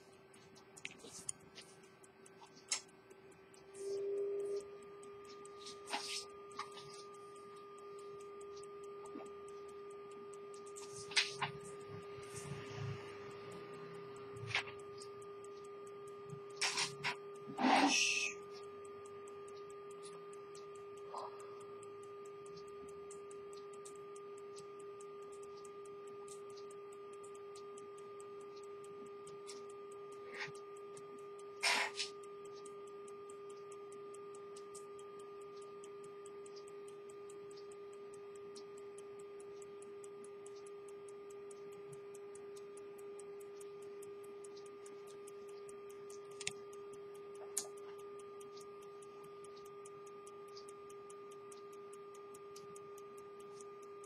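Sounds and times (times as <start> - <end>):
pocket watch ticking: 0.0 - 54.0
steady hum: 0.0 - 54.0.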